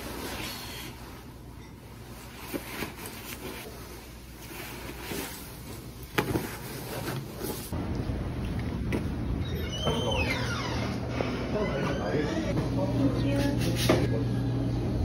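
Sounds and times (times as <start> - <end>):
jacket and scarf rustling: 2.0 - 7.8.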